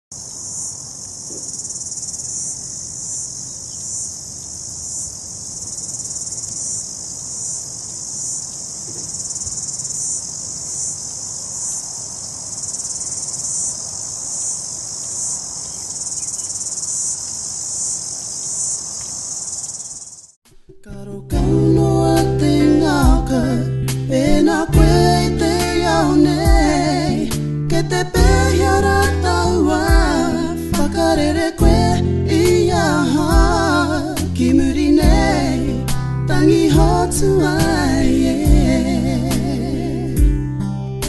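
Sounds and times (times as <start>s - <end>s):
cicadas shrilling: 0.1s - 20.4s, 25.2s - 36.0s.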